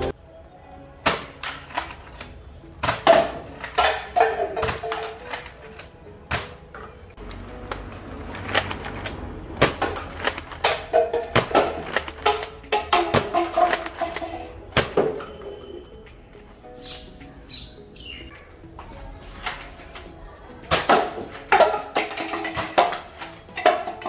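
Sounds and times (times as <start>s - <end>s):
faint music: 0.0s - 24.0s
toy blaster plastic clacks: 4.7s - 5.9s, 9.8s - 14.4s.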